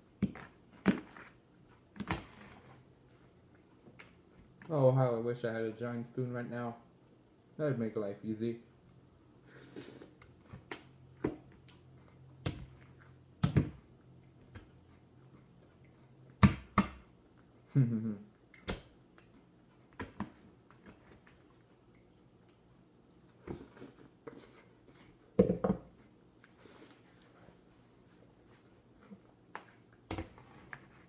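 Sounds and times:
chewing: 0:13.9 - 0:16.4, 0:20.6 - 0:25.3
closed-mouth hums: 0:17.6 - 0:18.5.

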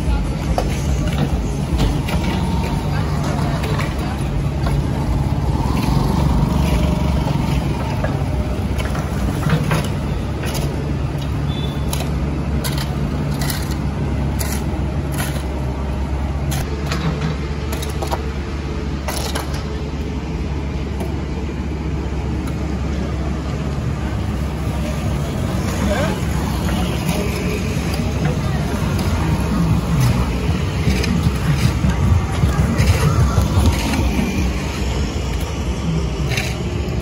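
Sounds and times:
vehicle engine rumbling: 0:00.0 - 0:37.0
shovels scraping garbage: 0:11.8 - 0:15.7.

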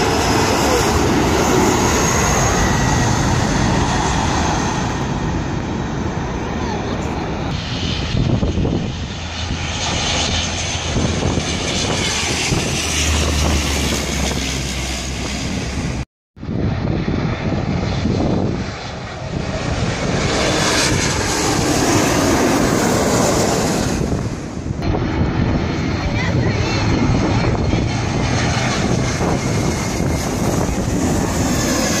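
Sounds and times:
jet engines roaring overhead: 0:00.0 - 0:32.0.

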